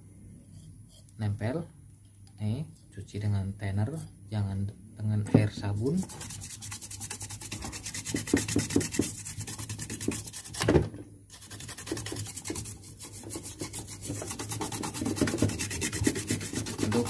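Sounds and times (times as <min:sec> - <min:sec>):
toothbrush scrubbing circuit board: 0:05.8 - 0:10.6, 0:11.3 - 0:17.0.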